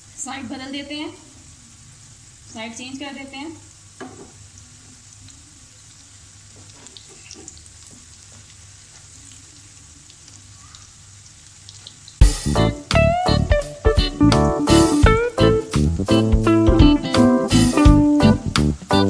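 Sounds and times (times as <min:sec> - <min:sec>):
food sizzling in hot oil: 0:00.0 - 0:14.0
loud music: 0:12.2 - 0:19.0.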